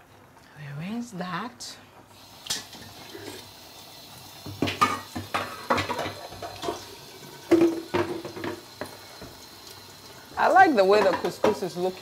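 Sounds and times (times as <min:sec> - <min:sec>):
water running into sink: 0:02.1 - 0:12.0
metal pan clanking: 0:04.6 - 0:06.9.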